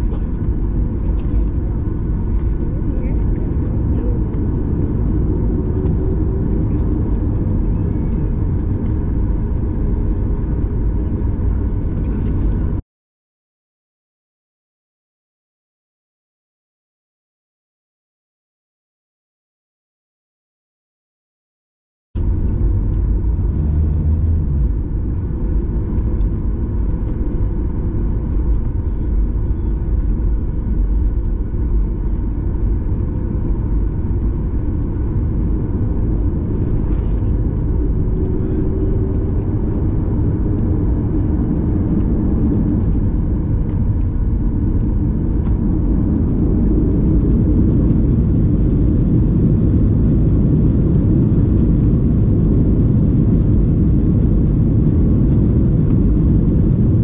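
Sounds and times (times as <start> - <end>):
jet engine low rumble in cabin: 0.0 - 12.8, 22.2 - 57.0.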